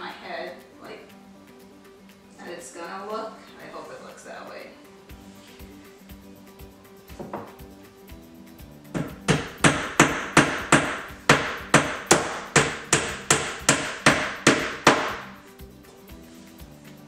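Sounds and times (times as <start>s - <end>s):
hammer driving nails into wood: 9.0s - 15.3s.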